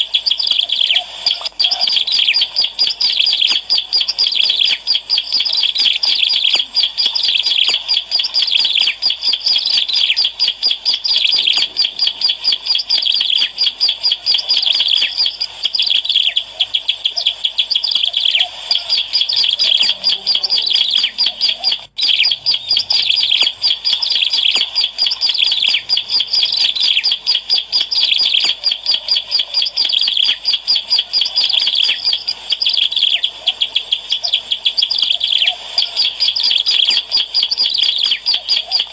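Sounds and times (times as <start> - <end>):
bird chirping rapidly: 0.0 - 38.9.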